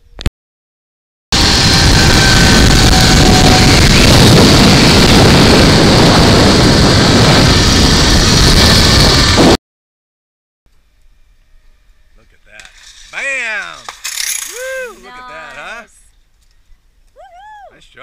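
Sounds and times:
wind rushing on microphone: 1.4 - 9.6.

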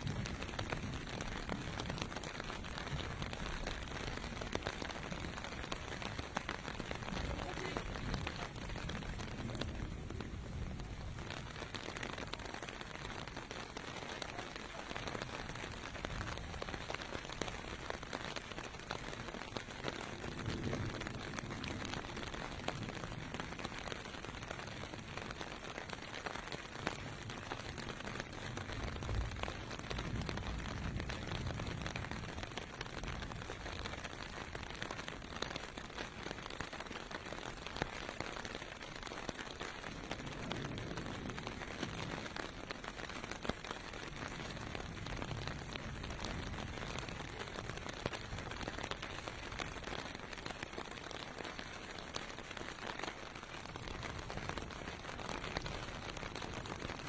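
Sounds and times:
distant traffic rumble: 0.0 - 17.8
rain on pavement: 0.0 - 57.0.

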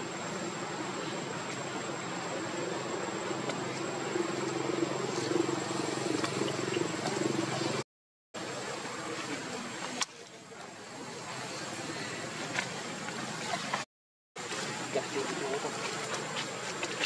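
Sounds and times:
low engine-like drone: 0.0 - 7.8.

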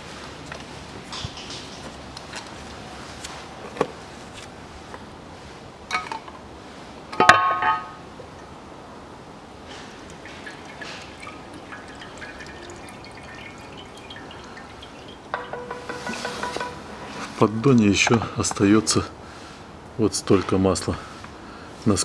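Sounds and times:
fluid dripping into a pan: 10.0 - 16.9.

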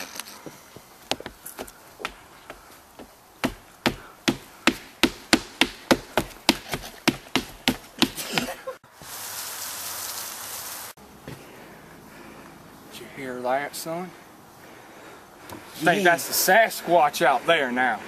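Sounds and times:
steady hiss: 8.0 - 11.0.

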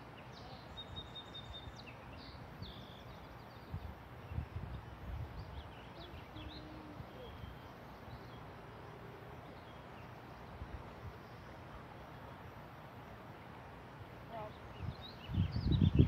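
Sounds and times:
steady hiss: 0.0 - 15.6
faint bird chirps: 0.1 - 12.7
wind rumble on microphone: 0.8 - 7.6, 14.3 - 16.0.

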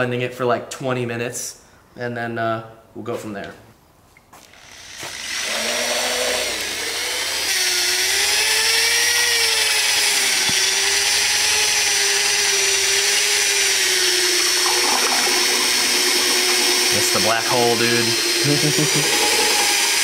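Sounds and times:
electric drill mixing oil: 4.4 - 20.0.

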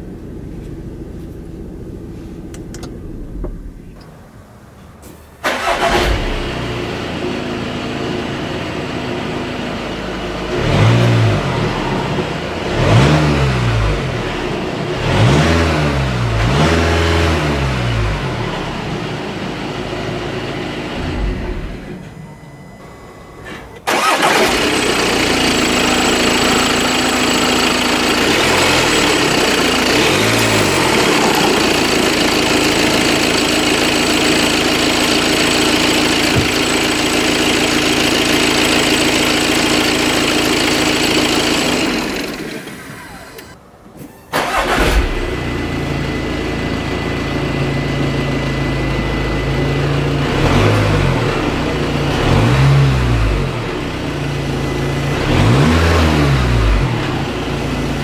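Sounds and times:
engine revving: 5.4 - 7.0, 10.4 - 19.0, 23.9 - 43.6, 44.4 - 46.1, 49.5 - 58.0
diesel engine idling: 17.9 - 43.6.

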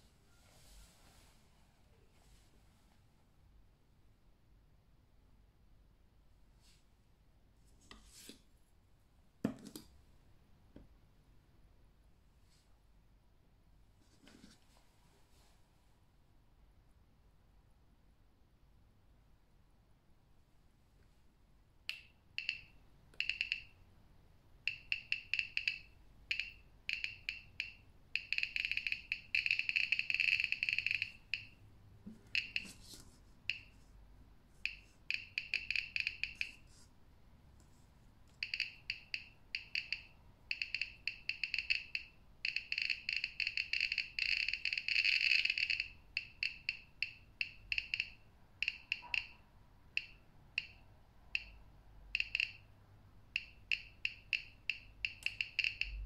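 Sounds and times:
radiation meter beeping: 22.4 - 23.8, 24.7 - 31.6, 32.3 - 32.9, 34.6 - 36.7, 38.4 - 50.8, 51.4 - 52.7, 53.4 - 56.0.

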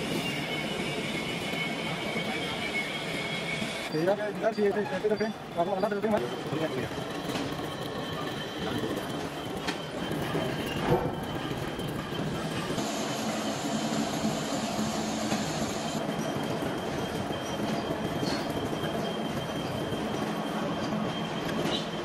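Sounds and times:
factory machinery running: 0.0 - 22.0
high machine whine: 8.6 - 21.9.

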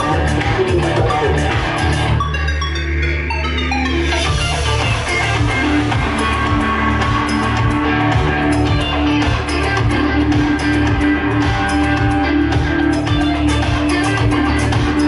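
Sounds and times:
electric guitar melody: 0.0 - 15.0
didgeridoo droning: 4.1 - 15.0.

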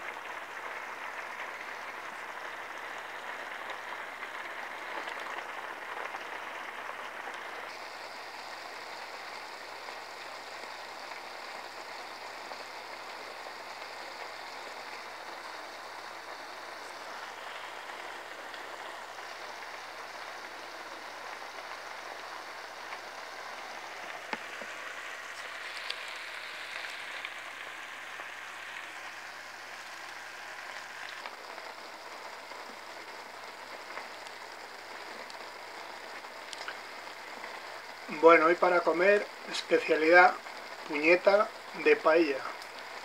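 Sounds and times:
rice and stock sizzling: 0.0 - 43.0
small pops: 16.4 - 37.9.

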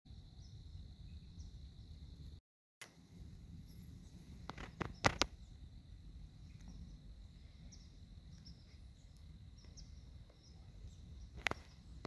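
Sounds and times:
faint bird chirps: 0.1 - 2.1, 6.3 - 12.0
low wind rumble: 0.1 - 2.4, 3.0 - 12.0.

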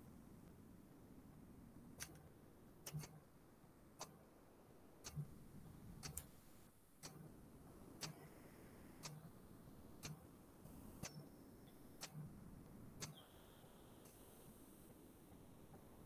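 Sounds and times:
clock ticking faintly: 7.9 - 10.3.

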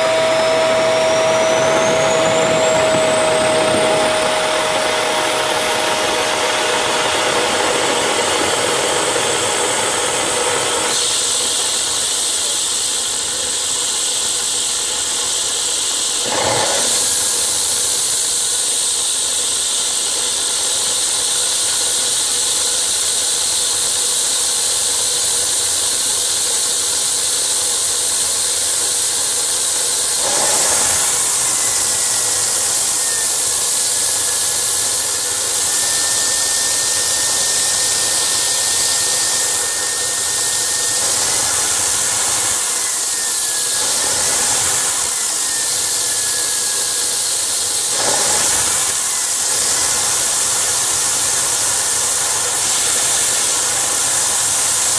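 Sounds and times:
faint whine drifting in pitch: 0.0 - 14.0, 30.5 - 47.6
jet engine rushing hiss: 0.0 - 21.9, 29.4 - 54.9.

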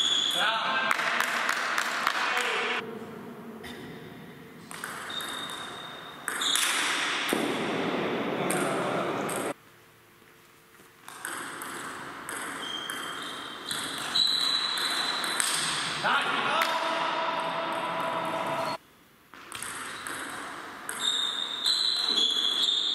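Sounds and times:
ping pong ball bouncing on table: 4.7 - 6.9, 11.1 - 15.8, 19.5 - 21.1
ping pong ball hitting rackets: 4.7 - 7.7, 8.4 - 9.6, 11.1 - 15.9, 19.4 - 21.4.

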